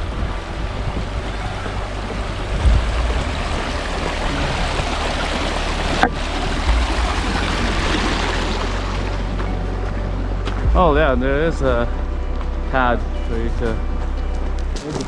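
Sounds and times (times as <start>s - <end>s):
creek rushing over rocks: 0.0s - 10.0s
wind rumble on microphone: 0.0s - 15.0s.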